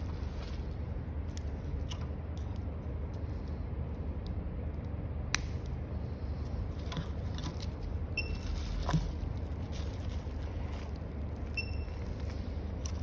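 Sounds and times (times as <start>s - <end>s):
plastic packaging rustling: 0.0s - 1.8s, 6.7s - 13.0s
steady low hum: 0.0s - 13.0s.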